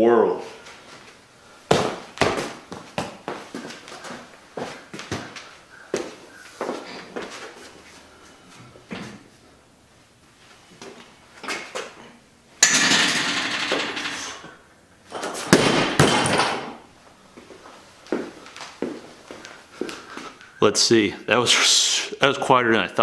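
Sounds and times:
barbell thudding on foam pads: 1.7s - 3.3s, 15.2s - 16.8s
loud noise of bar hauled up: 12.6s - 14.4s.

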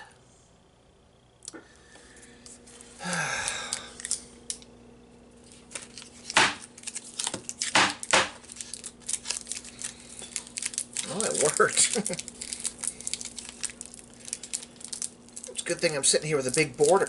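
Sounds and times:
plastic wrapper crinkling: 3.4s - 4.6s, 5.4s - 17.0s.

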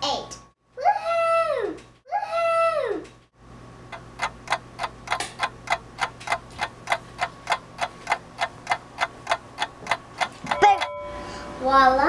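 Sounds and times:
clock ticking: 3.9s - 11.1s.

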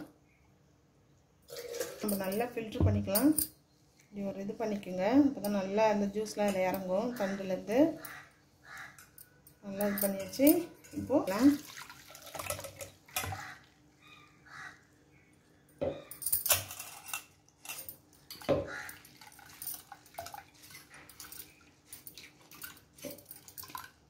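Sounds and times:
juice dripping through mesh: 11.3s - 14.0s.

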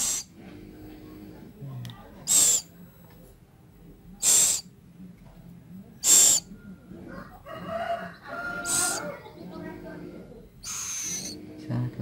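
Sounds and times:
owl chicks hissing begging calls: 0.0s - 0.3s, 2.3s - 2.7s, 4.2s - 4.7s, 6.0s - 6.5s, 8.6s - 9.2s, 10.6s - 11.4s.

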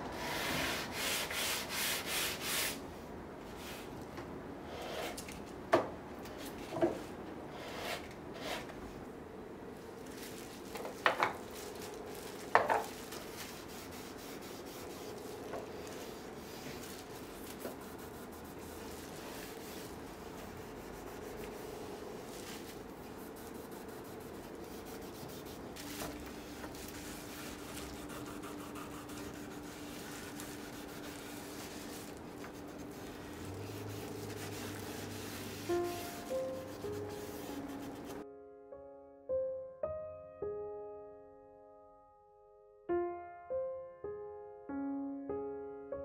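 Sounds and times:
gloved hands rubbing wood: 11.7s - 38.2s.

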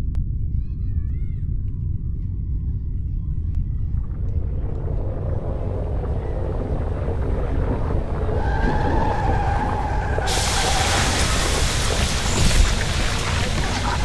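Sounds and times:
low rumbling drone: 0.0s - 14.0s
loud hiss: 10.2s - 14.0s.

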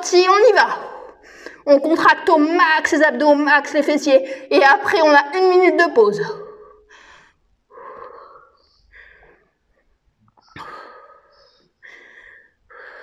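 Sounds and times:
woman breathing hard: 6.6s - 13.0s.

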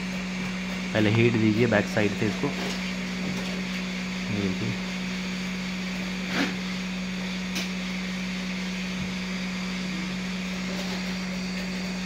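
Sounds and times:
hot air blower humming: 0.0s - 12.0s.

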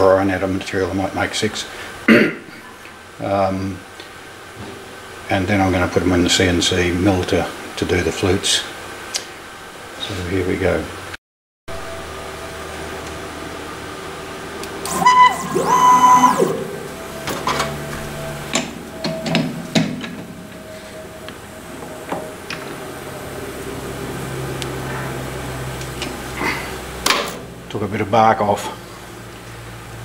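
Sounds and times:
lathe motor hum: 11.8s - 19.2s
whining slide movement: 14.6s - 18.8s
lathe tool cutting metal: 14.7s - 17.4s.

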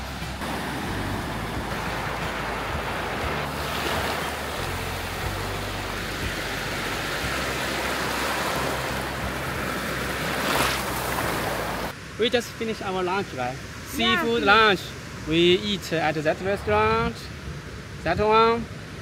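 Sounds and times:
sea waves breaking on shore: 0.0s - 19.0s.

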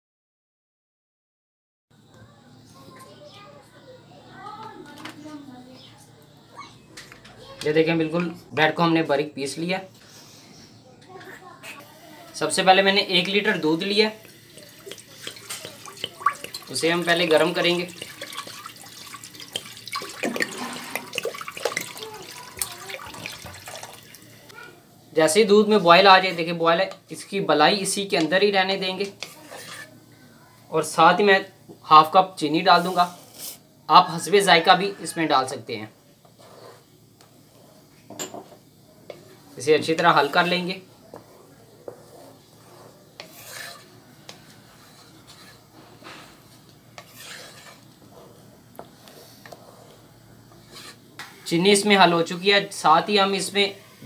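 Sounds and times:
wooden spoon scraping a pot: 14.2s - 24.2s, 29.0s - 30.0s, 36.2s - 36.9s, 39.9s - 51.9s
milk pouring into a pot: 14.2s - 24.4s
liquid gurgles: 14.5s - 24.4s.

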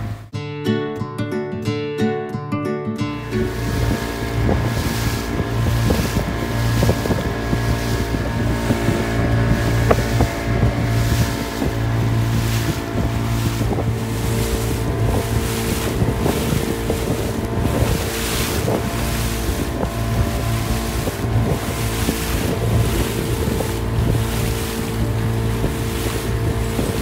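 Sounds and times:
boat engine running: 0.0s - 0.3s, 3.1s - 27.0s
wind buffeting microphone: 3.2s - 27.0s
water hissing along hull: 3.4s - 27.0s.

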